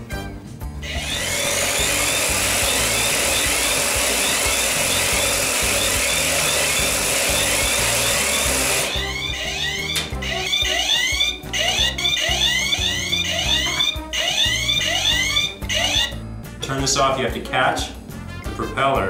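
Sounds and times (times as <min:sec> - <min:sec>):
motor whirring propeller: 0:00.8 - 0:15.1
electronic alarm chirps: 0:07.4 - 0:16.3.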